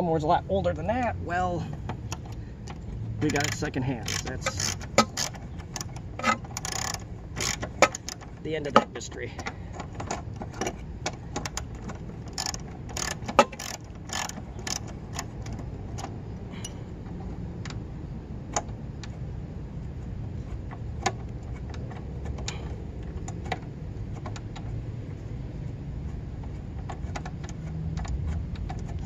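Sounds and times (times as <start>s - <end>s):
ratchet clicking on bolt: 2.1s - 8.8s, 9.4s - 16.1s.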